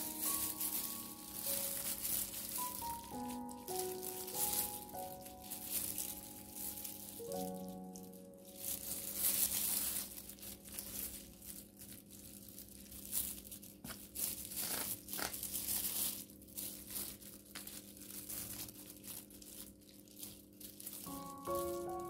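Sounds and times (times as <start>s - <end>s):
foil pan crinkling: 0.0s - 22.0s.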